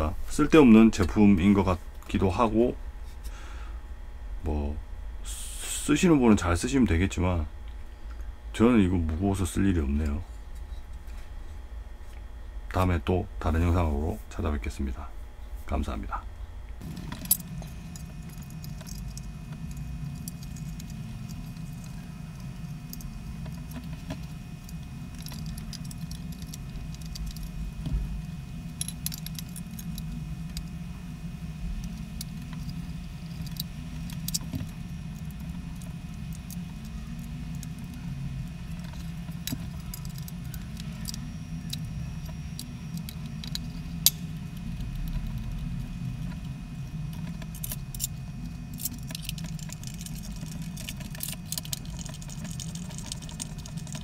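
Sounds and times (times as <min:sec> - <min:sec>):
steady low hum: 0:00.0 - 0:54.0
plastic parts clicking and rattling: 0:16.8 - 0:28.0, 0:31.8 - 0:38.0, 0:38.6 - 0:46.4, 0:47.1 - 0:54.0.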